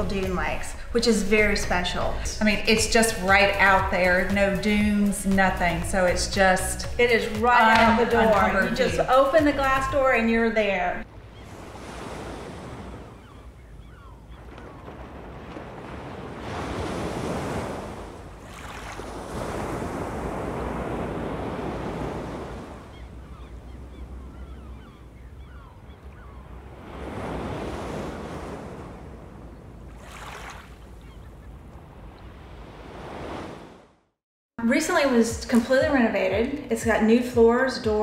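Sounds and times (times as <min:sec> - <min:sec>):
small waves breaking on sand: 0:11.0 - 0:13.4, 0:14.3 - 0:23.4, 0:26.6 - 0:33.9
wind rumbling on microphone: 0:11.0 - 0:33.8.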